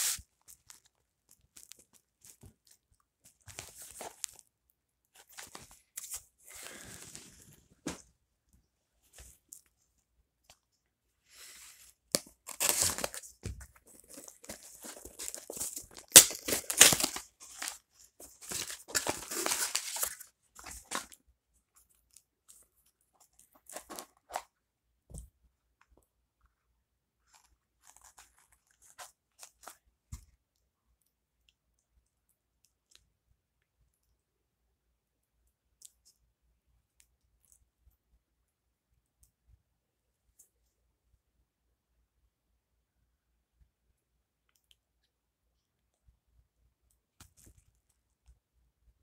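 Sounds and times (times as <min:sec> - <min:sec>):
packaging tearing and crinkling: 0:12.2 - 0:13.3, 0:14.0 - 0:21.2.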